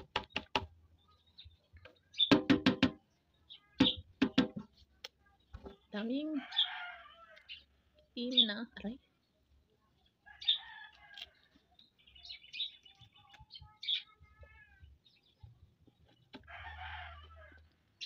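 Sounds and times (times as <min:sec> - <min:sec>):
small birds chirping: 0:00.0 - 0:18.0
chickens calling: 0:06.0 - 0:08.5.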